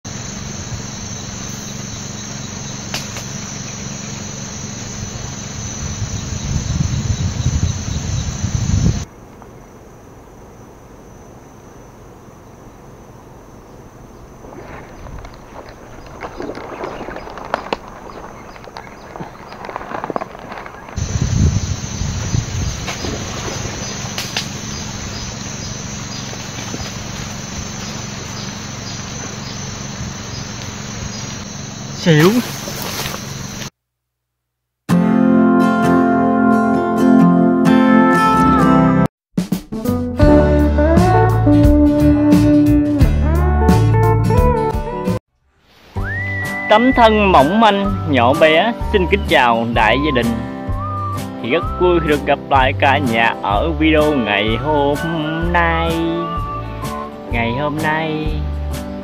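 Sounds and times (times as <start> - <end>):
constant low hum: 0.1 - 33.7
insects chirring: 0.1 - 33.8, 45.5 - 59.0.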